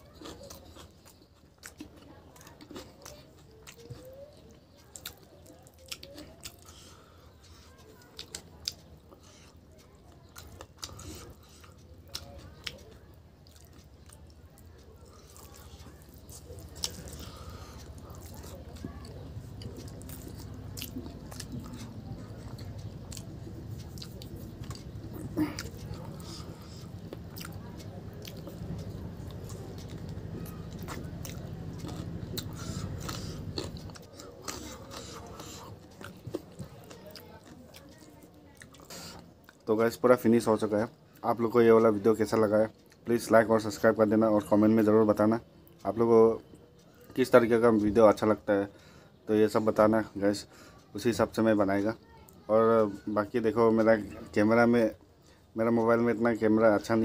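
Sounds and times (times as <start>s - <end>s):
man eating with mouth sounds: 0.0s - 40.0s
lip-smacks and chewing clicks: 0.1s - 39.7s
steady low hum: 8.8s - 36.6s.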